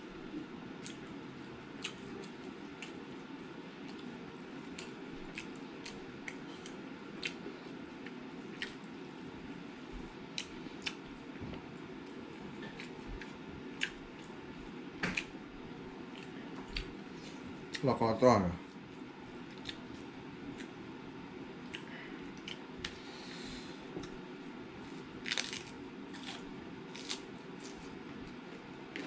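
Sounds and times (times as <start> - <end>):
steady low hum: 0.0 - 29.0
wet chewing: 1.8 - 3.0, 19.5 - 19.9
fingers tearing food: 25.3 - 27.9.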